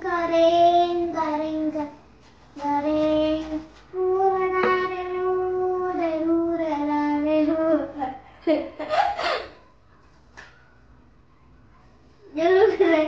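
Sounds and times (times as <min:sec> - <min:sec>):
boy singing long note: 0:04.0 - 0:06.6
boy laughing: 0:08.0 - 0:09.6, 0:12.6 - 0:13.0.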